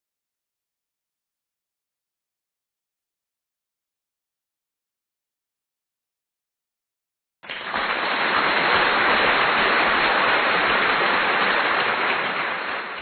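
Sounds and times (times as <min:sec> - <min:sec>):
loud steady hissing: 0:07.5 - 0:13.0.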